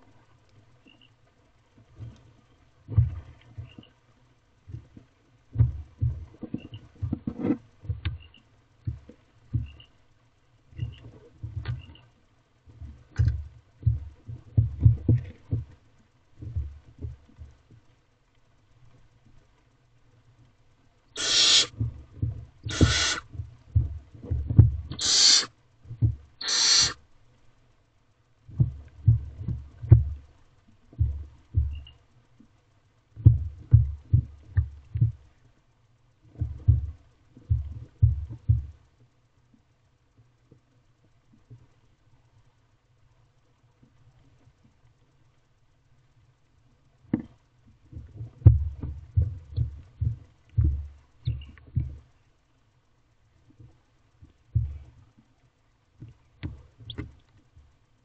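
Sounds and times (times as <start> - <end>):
owlets hissing screeches: 21.2 - 21.7, 22.7 - 23.3, 24.9 - 25.5, 26.4 - 27.0.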